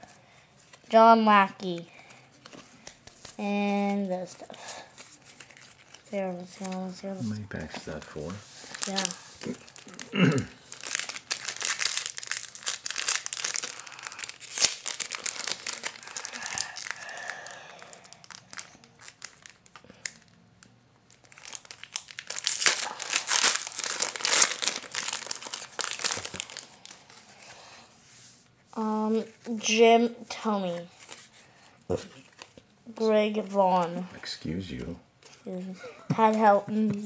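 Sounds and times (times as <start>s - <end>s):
foil wrapper crinkling and tearing: 4.8s - 6.9s, 7.6s - 20.4s, 21.1s - 27.5s, 32.2s - 32.6s.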